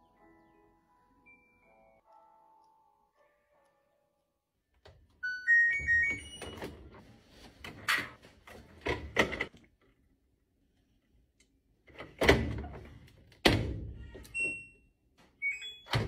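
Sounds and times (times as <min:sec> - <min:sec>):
clunks and thuds of laundry: 0:11.9 - 0:14.0.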